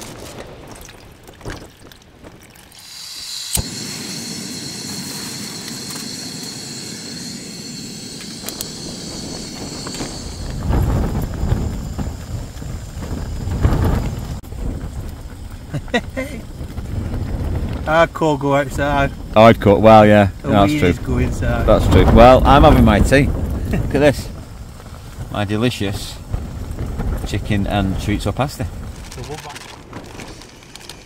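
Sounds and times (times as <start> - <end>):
gas stove hissing: 2.8 - 31.0
stove ignition click: 3.2 - 6.9, 8.1 - 10.5
low rumble: 3.7 - 30.9.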